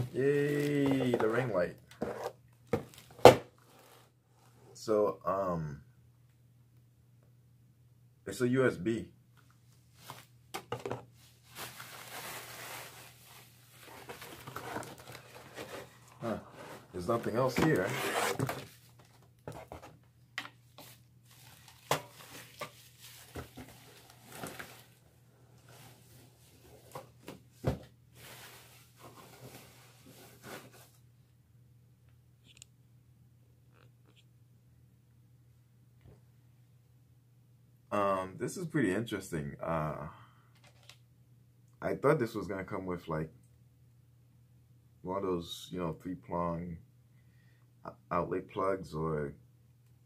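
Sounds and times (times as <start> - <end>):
plastic packaging rustling: 0.0 - 4.0, 10.0 - 19.9, 20.8 - 25.0
plastic bag crinkling: 11.4 - 15.8, 21.3 - 25.0.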